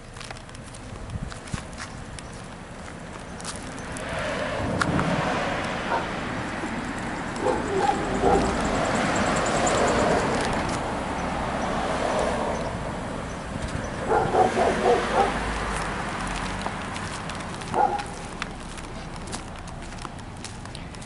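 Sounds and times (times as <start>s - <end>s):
outdoor background noise: 0.0s - 21.0s
dog barking: 5.9s - 6.2s, 7.4s - 8.7s, 14.0s - 15.4s, 17.7s - 18.2s.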